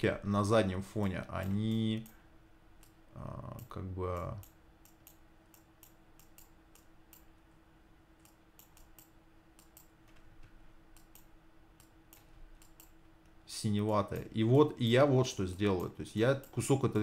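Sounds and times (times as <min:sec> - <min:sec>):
faint steady hum: 0:00.0 - 0:17.0
mouse and keyboard clicks: 0:08.2 - 0:13.0.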